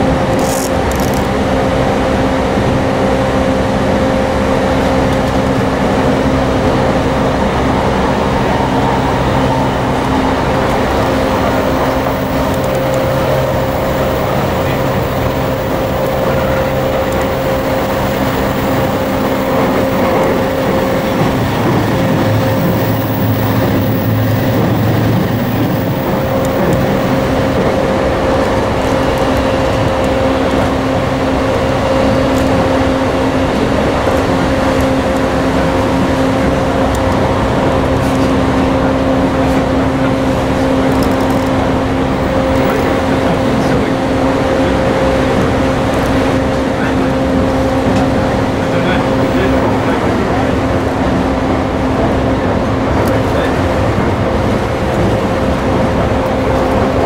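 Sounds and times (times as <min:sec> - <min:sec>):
train wheels rumbling on rail: 0:00.0 - 0:57.0
low hum: 0:02.1 - 0:40.9
train motor whine: 0:03.6 - 0:57.0.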